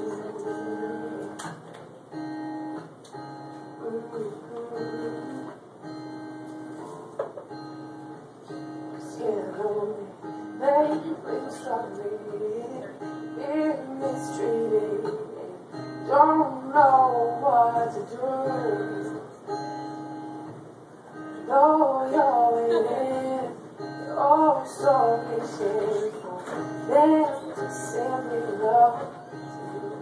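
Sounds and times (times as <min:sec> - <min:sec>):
woman singing: 0:00.0 - 0:01.6, 0:03.6 - 0:05.6, 0:09.0 - 0:19.2, 0:21.4 - 0:30.0
acoustic guitar strumming: 0:00.0 - 0:30.0.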